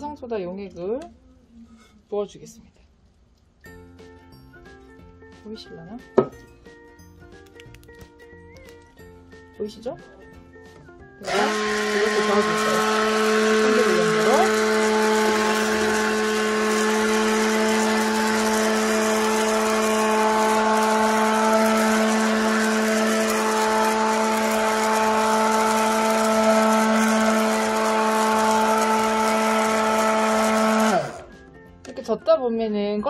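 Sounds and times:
electric hand blender running: 11.2 - 31.4.

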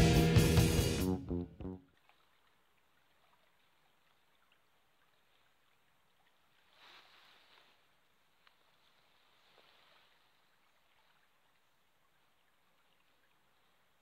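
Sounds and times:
music track: 0.0 - 1.8
faint rustle: 6.5 - 11.8.

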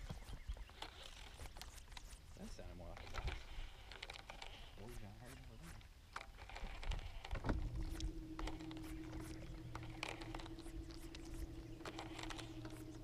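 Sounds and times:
electric trolling motor hum: 6.2 - 13.0.

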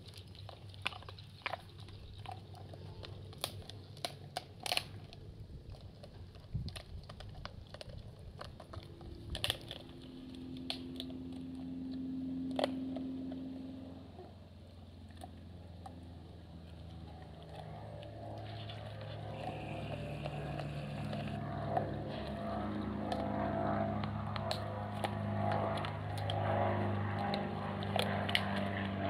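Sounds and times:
dog gnawing a bone: 0.0 - 29.0
steady engine drone: 7.5 - 29.0.

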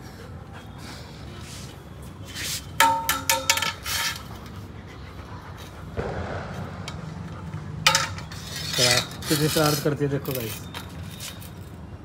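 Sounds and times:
metal rod clinking: 2.8 - 4.3, 7.9 - 11.7.

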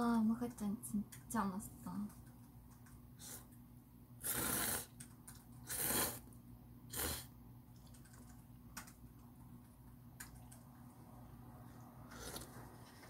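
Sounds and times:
person slurping noodles: 4.2 - 5.0, 5.6 - 6.3, 6.9 - 7.3.

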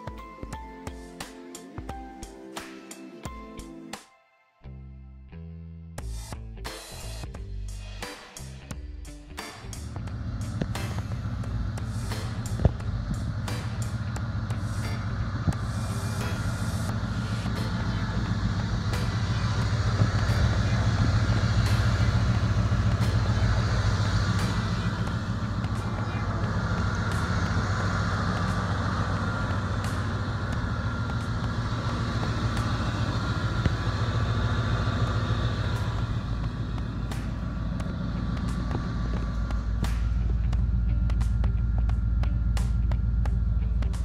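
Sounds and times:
pickup engine idling: 9.6 - 44.0.

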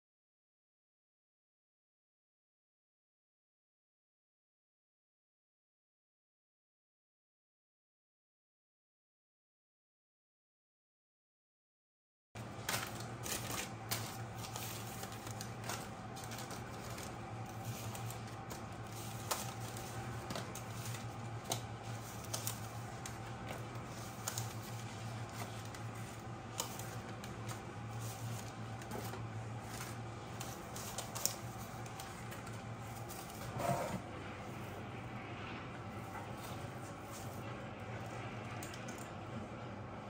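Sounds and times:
paper liners rustling in metal tin: 12.4 - 33.6
steady low hum: 12.4 - 40.0.

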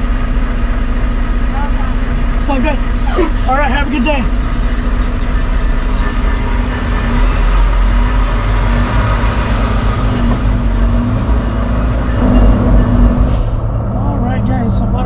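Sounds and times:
truck diesel engine droning: 0.0 - 15.0.

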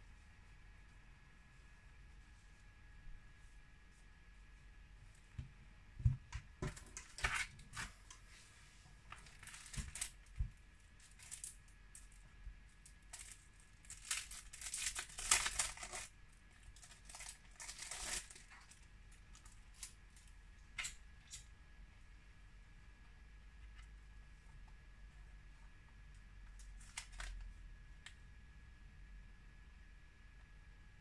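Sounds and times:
plastic packaging crinkling: 9.1 - 12.2, 12.9 - 20.3, 26.6 - 27.4.

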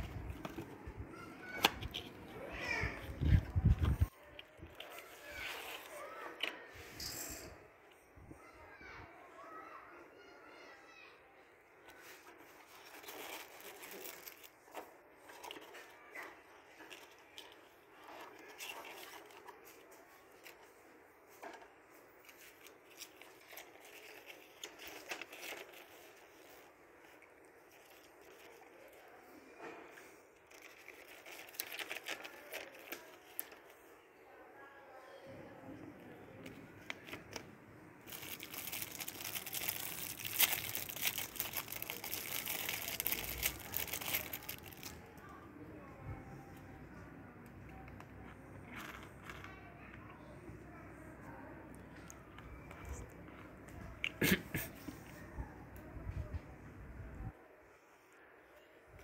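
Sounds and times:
paper rustling: 0.0 - 6.6, 11.9 - 33.9, 38.0 - 45.0
plastic wrapping crinkling: 12.0 - 21.4, 22.0 - 29.3, 30.4 - 33.8, 38.0 - 45.2.

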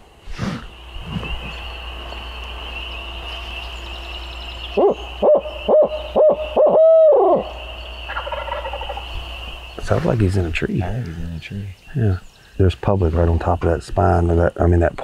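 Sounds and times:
owl call hoots: 0.2 - 10.3.

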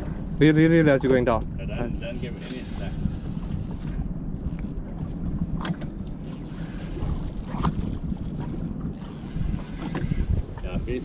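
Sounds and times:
wind and boat rumble: 0.0 - 11.0
fishing reel gears working: 1.7 - 5.0, 6.0 - 11.0.

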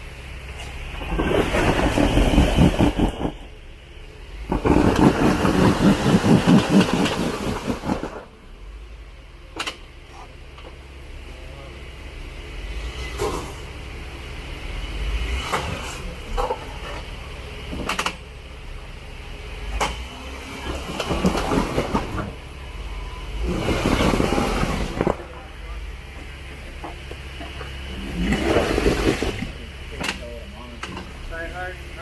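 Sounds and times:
vehicle engine running at low revs: 0.0 - 32.0.

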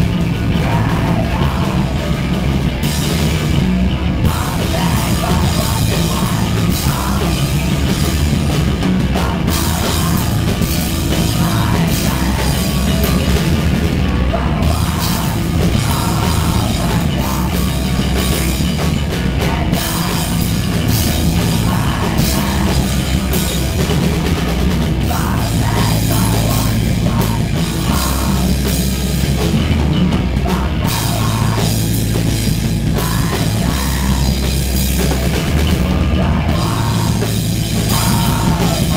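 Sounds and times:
punk band playing loud: 0.0 - 38.9
screamed vocals: 25.0 - 28.9, 32.8 - 38.9.

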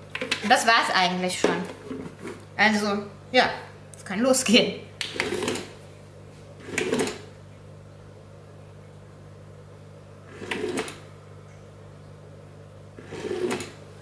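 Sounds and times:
cat toy motor whirring: 13.0 - 13.8.

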